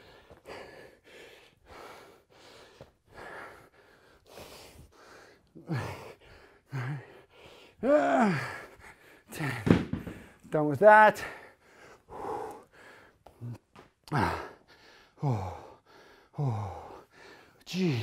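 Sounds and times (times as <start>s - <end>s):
man breathing hard: 0.0s - 10.5s, 11.2s - 18.0s
man groaning with effort: 7.8s - 8.6s.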